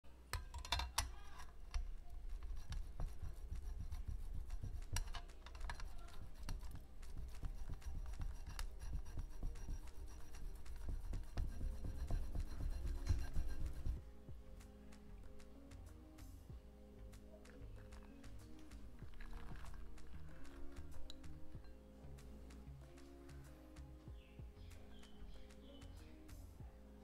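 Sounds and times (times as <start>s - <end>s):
cheese grating on metal grater: 0.7s - 14.0s.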